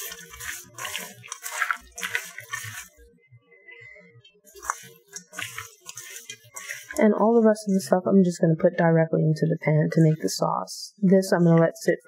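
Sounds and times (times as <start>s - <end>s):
hands mixing shrimp in a bowl: 0.0s - 3.0s, 4.5s - 8.0s.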